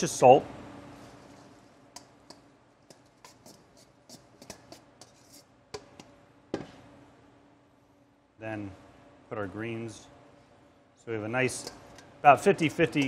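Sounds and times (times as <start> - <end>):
metal tongs scraping steel bowl: 1.2 - 6.1, 11.5 - 12.1.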